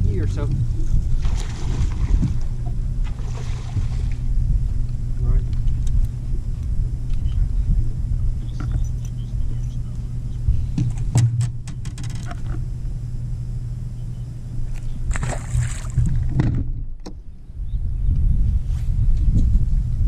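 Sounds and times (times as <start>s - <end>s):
electric trolling motor hum: 0.0s - 17.4s
sharp knocks: 10.8s - 12.1s.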